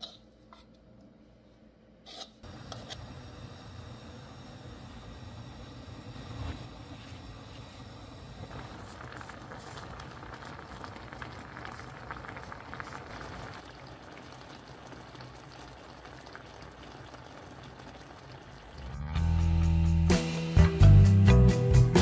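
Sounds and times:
sauce bubbling and crackling: 0:06.4 - 0:19.3
music: 0:18.9 - 0:22.0.

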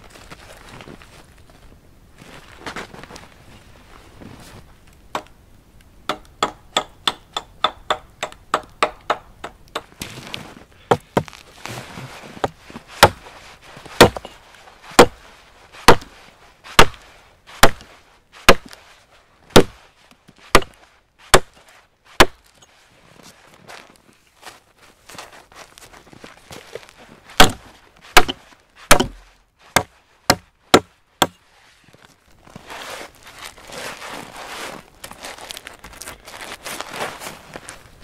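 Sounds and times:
axe chopping log: 0:10.9 - 0:11.4, 0:12.4 - 0:13.2, 0:14.0 - 0:14.4, 0:15.0 - 0:15.2, 0:15.8 - 0:16.1, 0:16.8 - 0:17.0, 0:17.6 - 0:17.9, 0:18.5 - 0:18.8, 0:19.5 - 0:19.8, 0:20.5 - 0:21.6, 0:22.2 - 0:22.4, 0:27.4 - 0:31.4.

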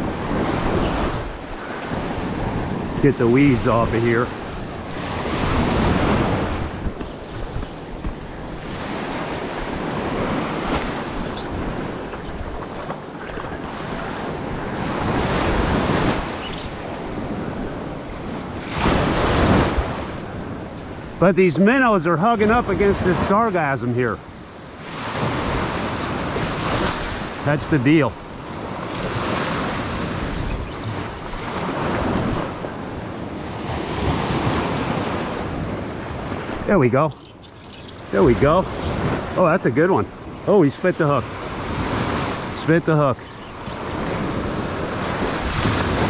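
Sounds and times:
wind buffeting microphone: 0:00.0 - 0:21.2, 0:28.1 - 0:39.4
small waves washing on beach: 0:00.0 - 0:46.0
surf breaking on beach: 0:38.1 - 0:46.0.

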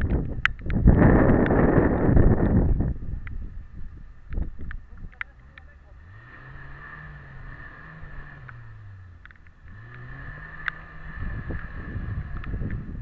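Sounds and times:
truck engine revving: 0:05.2 - 0:13.0.

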